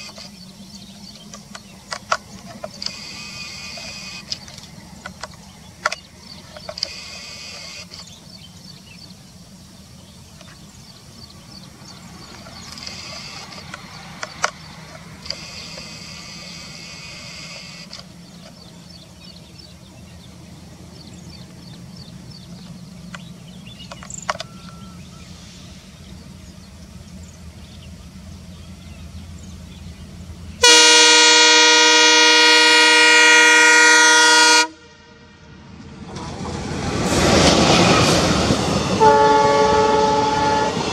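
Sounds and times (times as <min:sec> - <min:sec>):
diesel locomotive rumble: 0:00.0 - 0:40.9
sharp clicks: 0:01.1 - 0:08.2, 0:12.3 - 0:16.7
high buzzing: 0:02.6 - 0:04.5
train horn blast: 0:30.6 - 0:35.7, 0:38.8 - 0:40.9.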